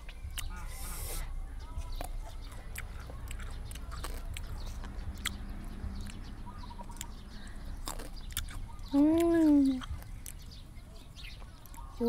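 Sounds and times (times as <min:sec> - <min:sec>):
chewing and mouth sounds: 0:00.0 - 0:12.0
voiced hum: 0:00.0 - 0:12.0.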